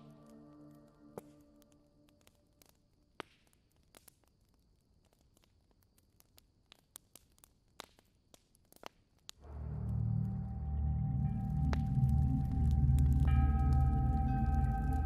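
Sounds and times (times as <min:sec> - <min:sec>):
music track: 0:00.0 - 0:02.2, 0:09.4 - 0:15.0.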